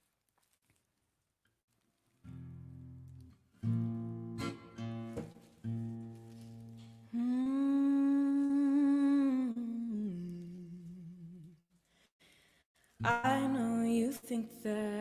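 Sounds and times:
acoustic guitar strummed: 2.3s - 7.0s
woman humming: 7.1s - 11.6s.

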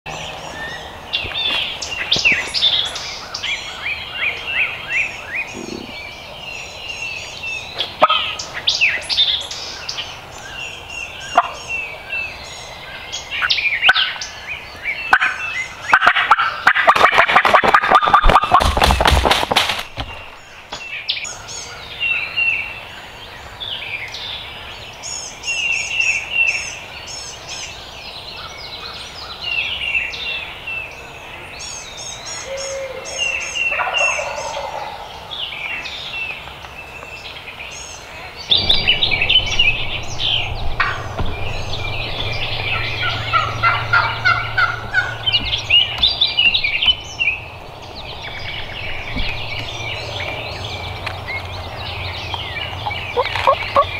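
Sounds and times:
songbirds chirping: 0.1s - 53.9s
turkey gobbling: 8.0s - 8.4s, 11.3s - 11.6s, 15.1s - 19.0s, 33.7s - 35.0s, 42.8s - 45.5s, 53.2s - 53.9s.

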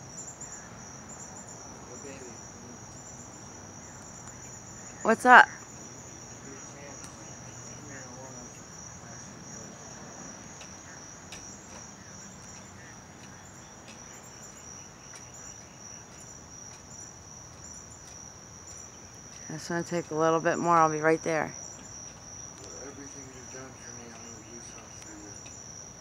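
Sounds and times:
insects trilling: 0.0s - 26.0s
faint ticks: 10.5s - 16.9s, 21.6s - 22.8s, 24.1s - 25.6s.

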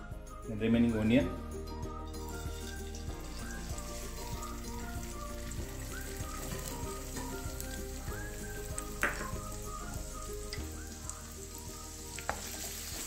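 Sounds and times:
background music: 0.0s - 13.0s
onion sizzling in hot oil: 1.8s - 13.0s
sharp pop of frying oil: 9.0s - 9.4s, 12.2s - 12.6s.

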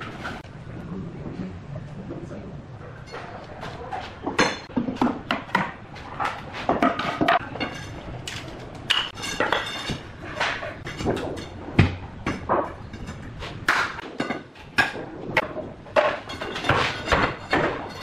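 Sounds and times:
wooden boards knocking and clattering: 4.2s - 7.6s, 8.9s - 18.0s.

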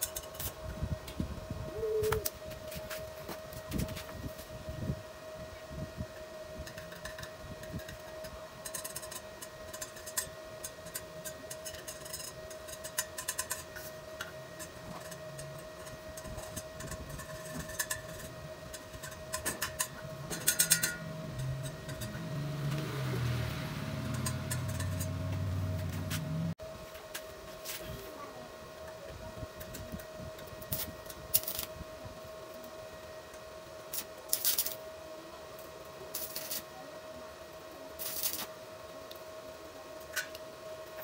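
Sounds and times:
welding machine whine: 0.0s - 41.0s
welding arc crackling: 30.7s - 31.7s, 33.9s - 34.8s, 36.1s - 36.7s, 38.0s - 38.6s.

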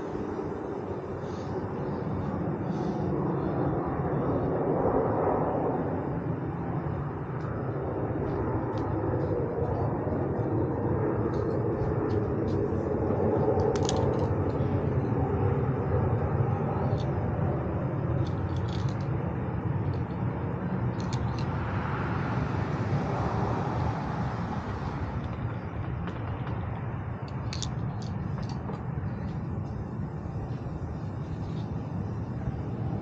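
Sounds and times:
low outdoor rumble: 0.0s - 33.0s.

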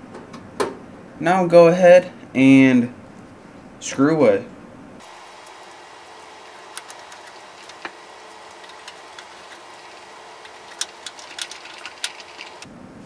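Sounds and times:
steady hiss: 1.9s - 13.0s
screwdriver clicking on screws: 6.7s - 12.6s.

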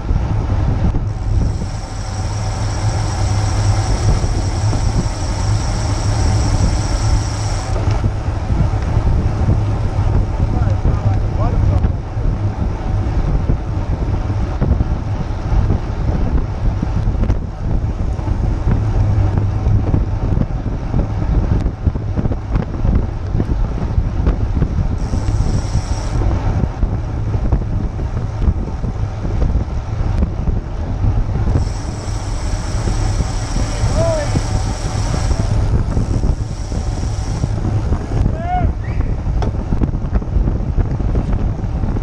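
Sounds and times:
high whine: 0.0s - 12.9s, 24.6s - 39.9s
wind buffeting microphone: 0.0s - 42.0s.

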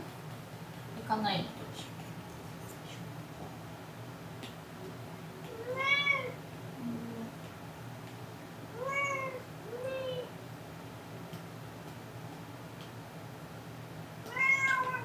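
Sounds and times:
cat meowing: 5.5s - 6.4s, 8.8s - 10.3s, 14.3s - 15.0s.

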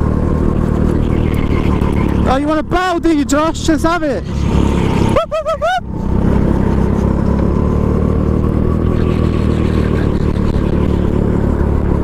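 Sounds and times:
go-kart engine droning: 0.0s - 12.0s.

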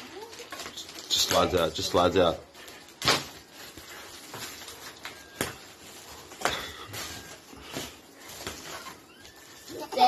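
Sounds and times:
plastic wrap and cardboard rustling: 0.0s - 10.0s.

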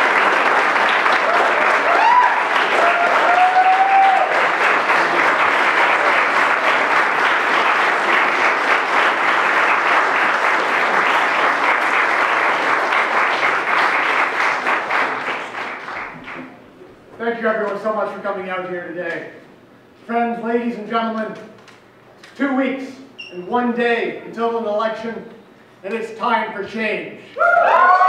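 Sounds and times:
crowd applauding: 0.0s - 16.6s.

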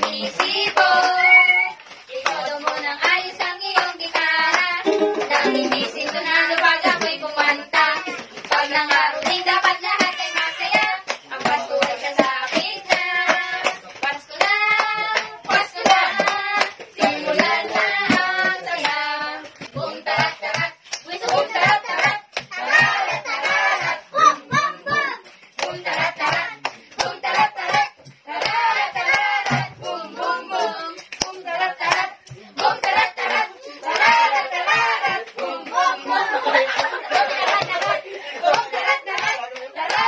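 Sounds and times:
children and women singing: 0.0s - 40.0s
instrumental backing: 4.8s - 6.4s
steady percussive beat: 4.8s - 7.1s, 15.5s - 35.6s.

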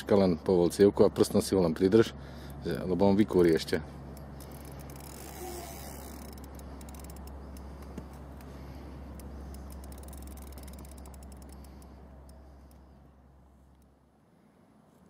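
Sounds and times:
fishing reel drag clicking: 4.2s - 8.5s, 9.1s - 12.9s.

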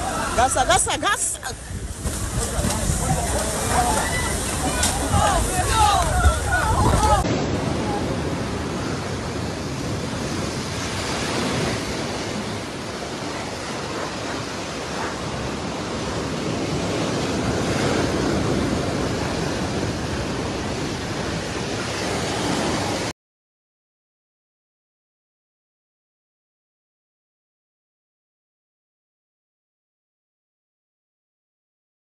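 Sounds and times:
storm surf breaking: 0.0s - 23.1s
wind: 0.0s - 23.1s.

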